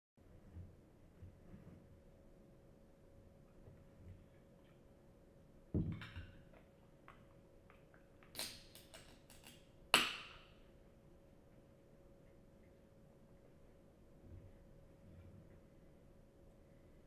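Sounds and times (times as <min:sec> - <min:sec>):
soda can popping open and fizzing: 0:08.2 - 0:10.4.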